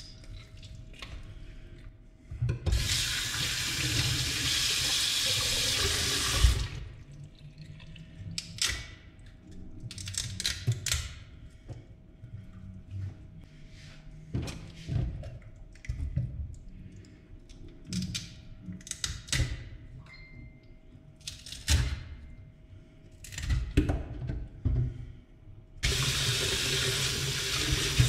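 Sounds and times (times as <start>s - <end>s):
tap water running into sink: 2.7s - 6.8s, 25.8s - 28.0s.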